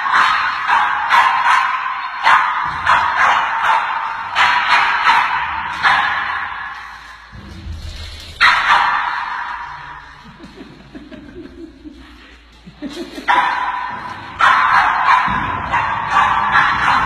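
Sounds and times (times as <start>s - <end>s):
person chuckling quietly: 10.2s - 13.3s
small dog barking: 13.3s - 17.0s.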